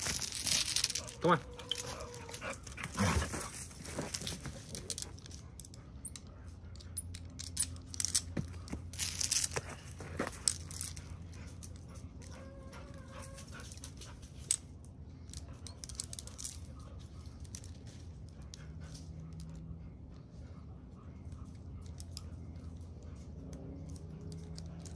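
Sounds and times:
harness clicks and rustling: 0.0s - 5.7s, 7.1s - 11.8s.

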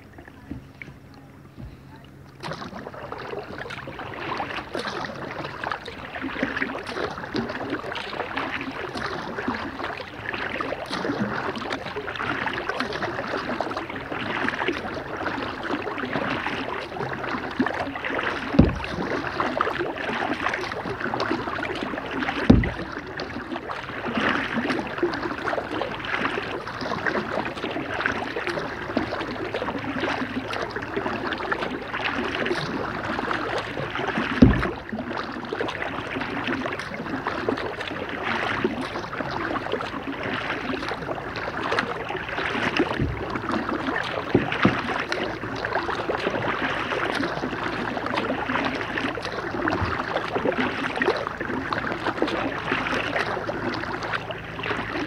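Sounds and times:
paddle splashing and dripping water: 0.0s - 55.0s
dull knocks: 0.4s - 1.9s, 18.6s - 19.2s, 22.4s - 23.0s, 34.4s - 34.9s, 42.8s - 43.7s.

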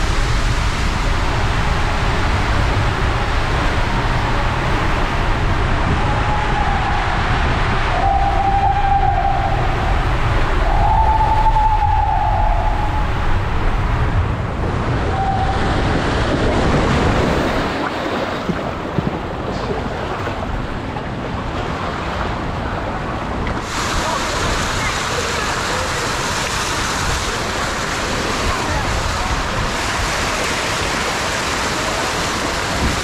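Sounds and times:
rider sliding through water-slide tube: 0.0s - 33.0s
water splashing and hissing: 23.5s - 33.0s.

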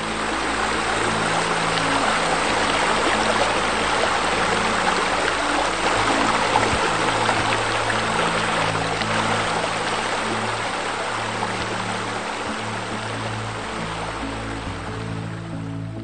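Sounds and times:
soft background music: 0.0s - 16.0s.

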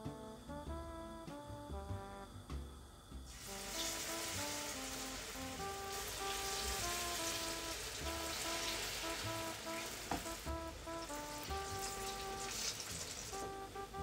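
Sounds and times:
background music: 0.0s - 14.0s
batter sizzling in hot oil: 3.3s - 14.0s.

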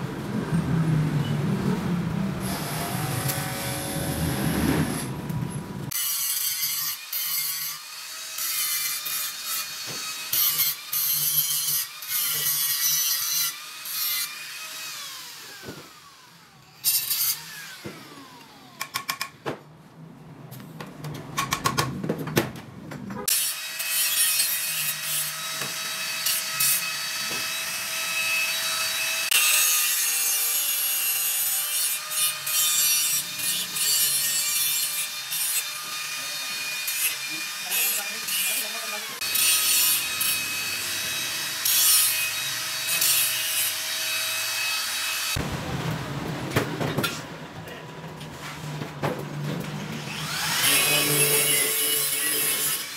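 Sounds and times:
angle grinder grinding metal: 2.4s - 16.0s, 23.3s - 45.4s, 50.0s - 52.9s.

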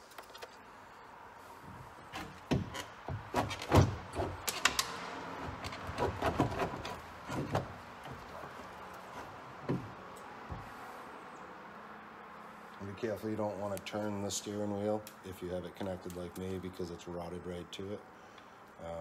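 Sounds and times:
knocks and clunks of steering helm: 1.7s - 4.5s, 5.4s - 10.7s.

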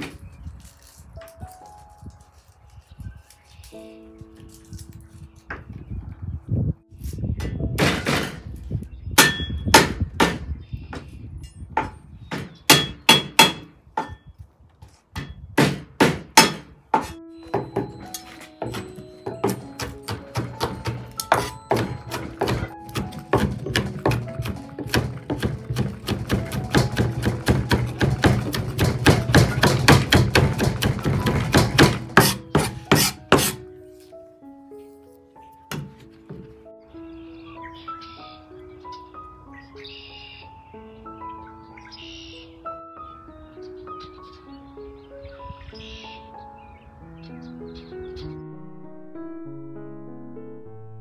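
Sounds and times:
knife chopping on cutting board: 18.6s - 33.6s.

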